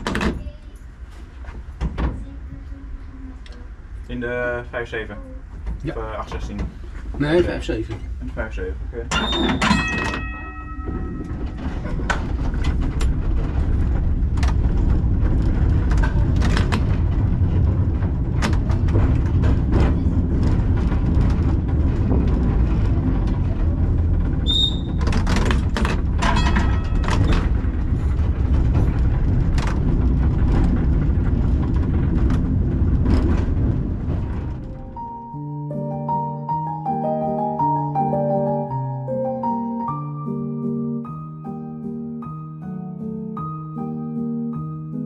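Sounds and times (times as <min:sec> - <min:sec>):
tram wheels rumbling: 0:00.0 - 0:39.9
clicks and knocks: 0:09.1 - 0:35.2.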